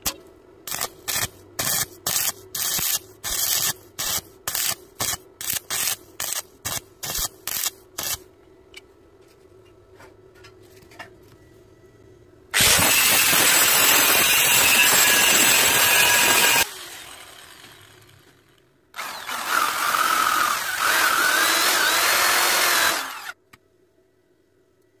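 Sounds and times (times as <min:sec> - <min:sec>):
welding arc crackling: 0:00.7 - 0:08.3, 0:12.6 - 0:17.1
angle grinder grinding metal: 0:12.6 - 0:18.4.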